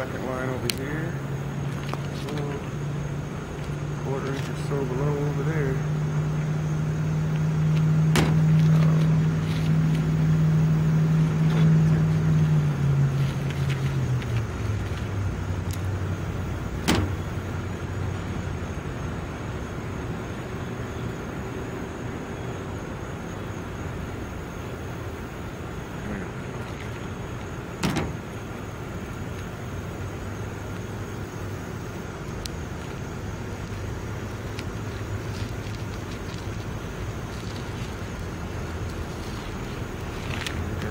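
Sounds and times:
vehicle engine humming: 0.0 - 40.9.

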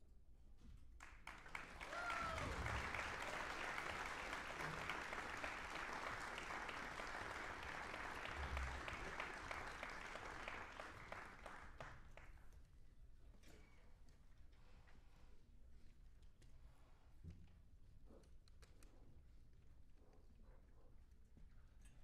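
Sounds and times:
audience applauding: 1.0 - 12.3.

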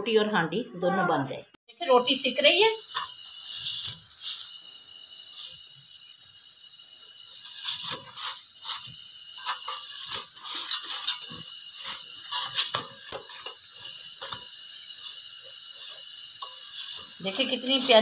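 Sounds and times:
steady hiss: 1.8 - 18.0
metal spatula scraping griddle: 2.9 - 4.5, 7.3 - 18.0.

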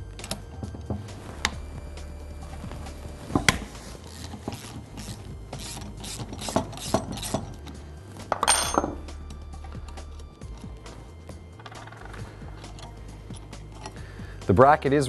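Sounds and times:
socket ratchet clicking: 3.3 - 7.8, 11.6 - 14.0.

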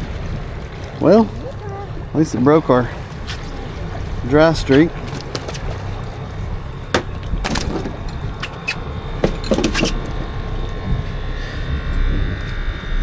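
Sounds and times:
steady low rumble: 0.0 - 13.0
knocks on fiberglass deck: 6.9 - 8.0.

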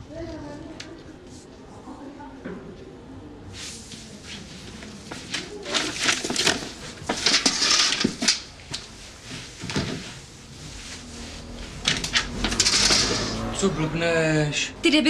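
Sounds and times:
wet cloth scrubbing wooden floor: 3.6 - 13.6.

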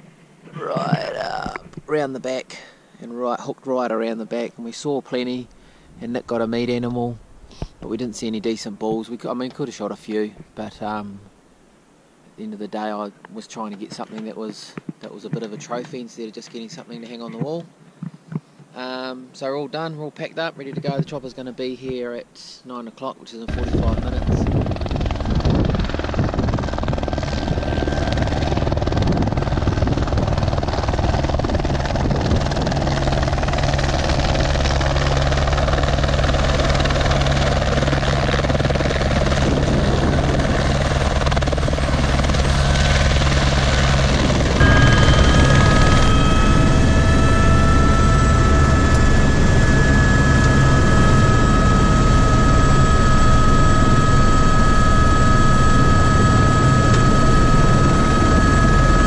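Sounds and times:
helicopter rotor beat: 23.5 - 59.0
high-pitched turbine whine: 23.5 - 59.0.

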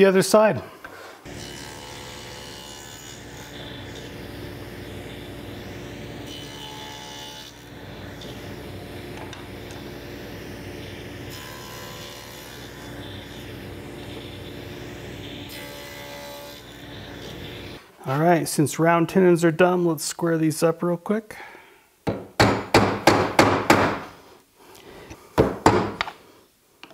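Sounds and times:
table saw cutting wood: 0.9 - 17.8
saw motor hum: 1.3 - 17.8.

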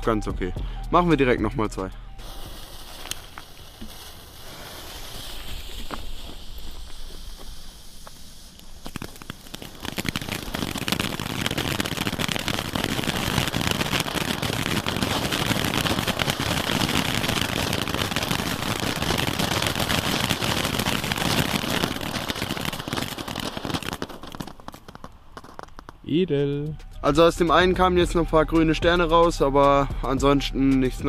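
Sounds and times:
fountain fireworks hissing and crackling: 2.2 - 26.6.

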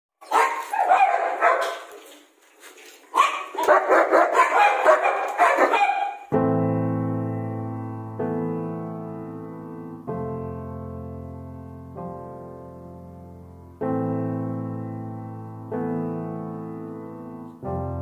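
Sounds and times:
dog barking: 0.2 - 2.0, 3.1 - 6.3
slow piano music: 3.2 - 18.0.

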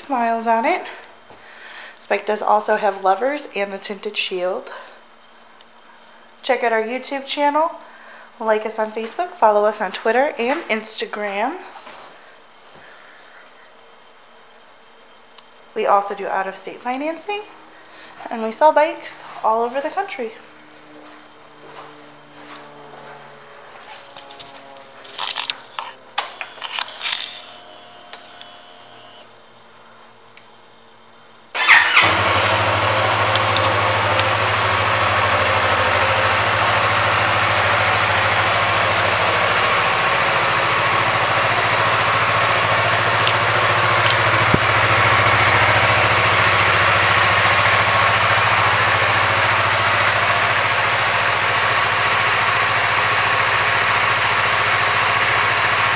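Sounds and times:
motorcycle engine starting and idling: 19.6 - 29.3, 31.5 - 55.9
clicks: 24.1 - 28.6, 43.2 - 45.0.

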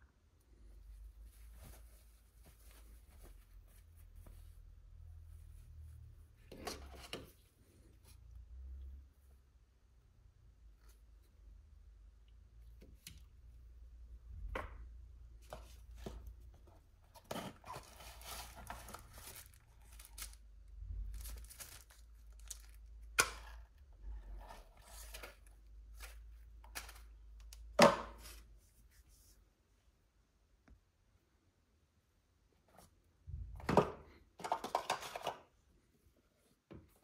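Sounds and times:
packaging crinkling: 17.6 - 23.1.

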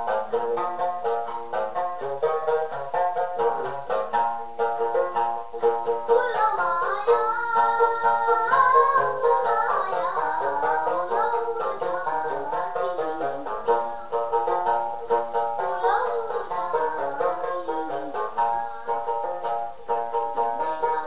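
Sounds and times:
lute strummed: 0.0 - 21.0
young person singing: 5.0 - 19.4, 20.1 - 21.0.

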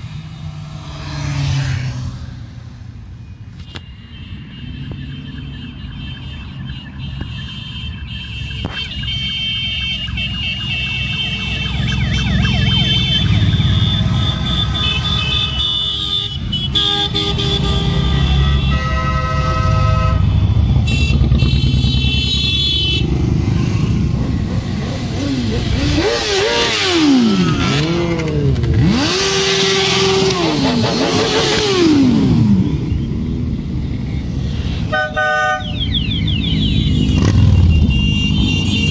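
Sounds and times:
motorcycles rumbling past: 0.0 - 2.9, 20.1 - 34.6
horns honking: 3.5 - 24.1, 24.8 - 32.9, 34.8 - 38.9
wailing siren tone: 4.8 - 15.6.

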